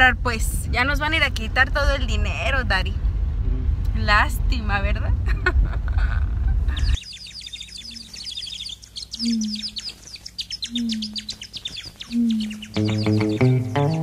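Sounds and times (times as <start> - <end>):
car road rumble: 0.0 - 7.0
small birds chirping: 6.5 - 14.0
low short bird note: 9.1 - 9.9, 10.6 - 11.4.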